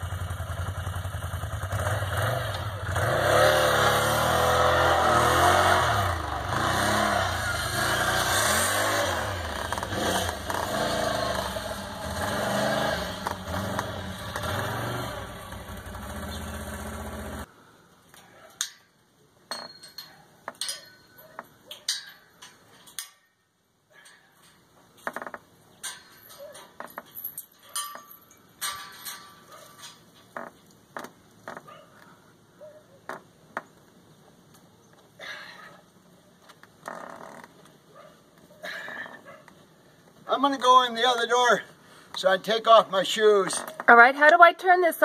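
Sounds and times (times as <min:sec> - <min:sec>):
quad bike engine revving: 0:00.0 - 0:17.5.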